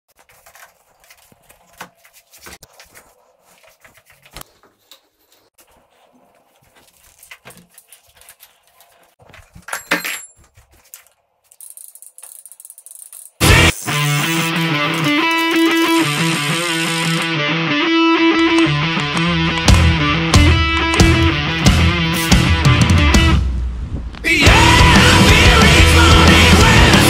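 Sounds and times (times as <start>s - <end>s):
bike parts and tools clicking: 7.1s - 16.0s.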